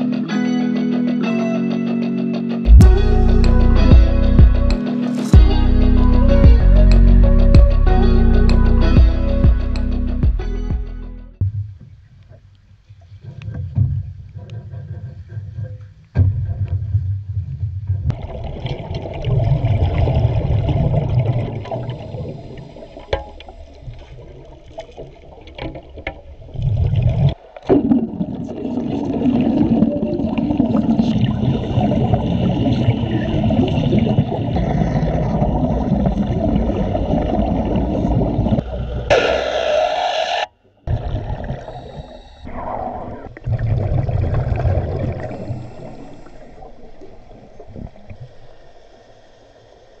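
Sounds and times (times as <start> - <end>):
muffled water rumbling and gurgling: 2.7 - 4.8, 5.4 - 39.1, 40.6 - 50.0
underwater bubbling rush: 18.1 - 50.0.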